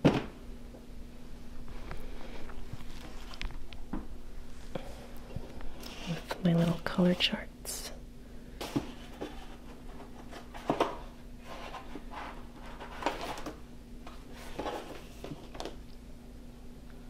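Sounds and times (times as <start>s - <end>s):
paper rustling: 8.6s - 15.7s.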